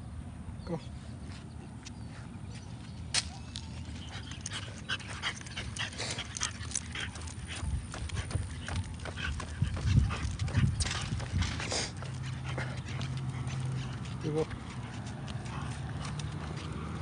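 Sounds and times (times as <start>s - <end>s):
dog claws ticking on pavement: 3.1s - 17.0s
dog breathing and snuffling: 3.9s - 17.0s.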